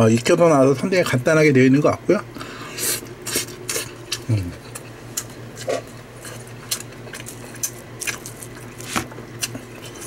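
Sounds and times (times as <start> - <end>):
person grunting: 4.3 - 4.6.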